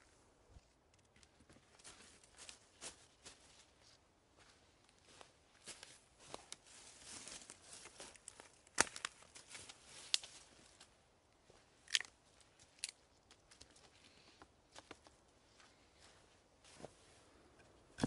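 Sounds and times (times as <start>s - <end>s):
footsteps on dry leaves: 5.1s - 10.5s
twigs snapping: 8.2s - 9.2s, 11.9s - 13.7s.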